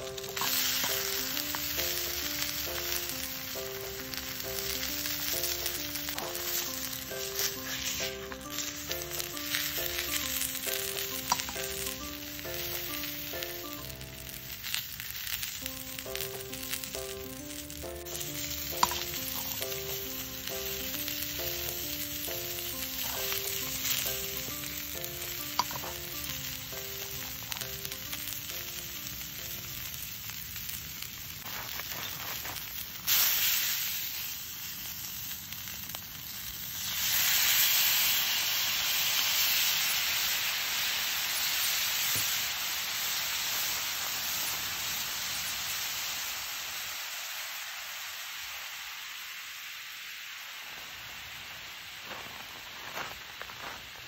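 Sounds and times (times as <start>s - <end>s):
liquid hissing in a hot pan: 0.0s - 28.8s, 29.5s - 54.0s
background music: 0.0s - 30.2s
sauce boiling in a skillet: 0.0s - 54.0s
tofu sizzling in oil: 0.0s - 54.0s.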